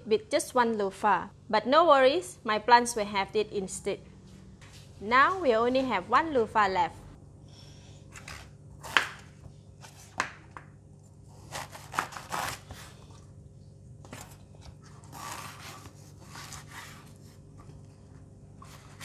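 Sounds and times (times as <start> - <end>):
knife drawing through flesh: 11.3 - 13.1, 14.9 - 17.3.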